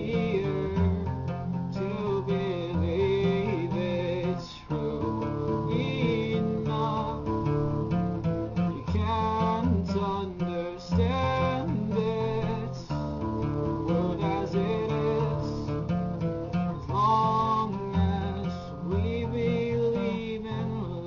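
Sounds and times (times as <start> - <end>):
acoustic guitar strumming chords: 0.0 - 21.0.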